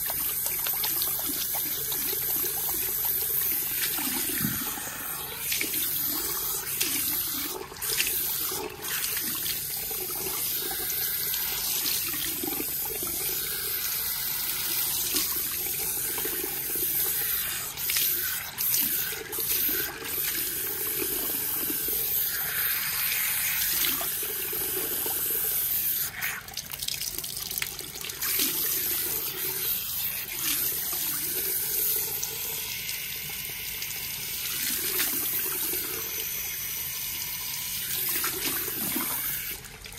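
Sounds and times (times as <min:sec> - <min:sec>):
shower head spraying water: 0:00.0 - 0:26.6, 0:28.1 - 0:39.6.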